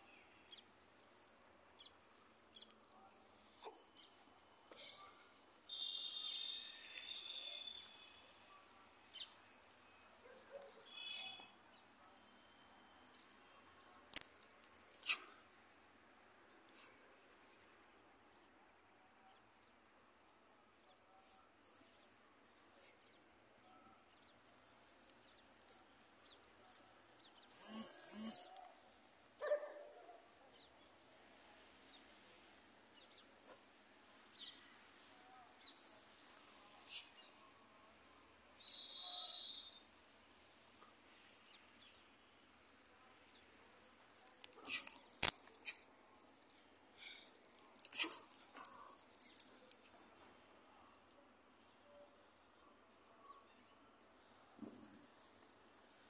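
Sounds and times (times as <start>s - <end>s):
faint outdoor ambience: 0.0s - 56.0s
faint bird chirps: 1.7s - 15.3s, 25.0s - 31.1s, 34.2s - 39.9s
dog barking: 10.2s - 11.4s, 29.4s - 30.4s.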